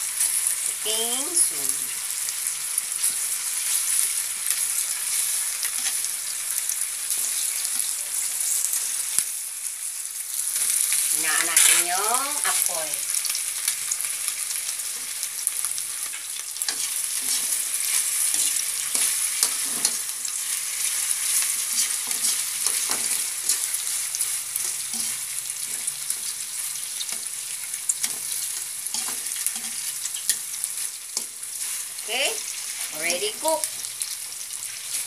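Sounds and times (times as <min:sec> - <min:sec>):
meat sizzling in oil: 0:00.0 - 0:35.0
tongs scraping metal pan: 0:11.2 - 0:12.5, 0:16.6 - 0:33.6.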